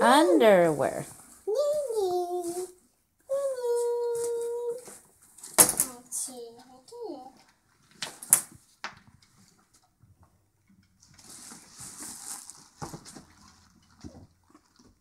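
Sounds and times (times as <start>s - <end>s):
cloth rustling: 11.0s - 14.9s.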